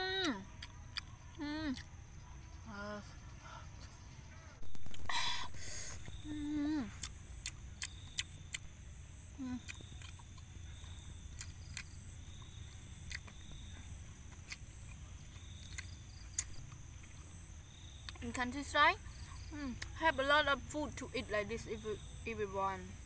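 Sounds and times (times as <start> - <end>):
night insects chirring: 0.0 - 23.0
chewing and lip smacks: 0.6 - 2.0, 6.9 - 8.7, 9.6 - 13.7, 14.3 - 17.2
person humming: 1.4 - 1.8, 6.2 - 7.1, 9.4 - 9.7.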